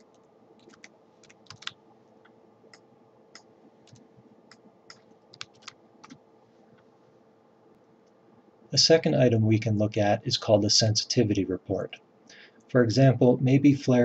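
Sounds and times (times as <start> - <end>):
keyboard typing: 0.0 - 1.8, 2.7 - 6.2
faint steady hum: 0.0 - 14.0.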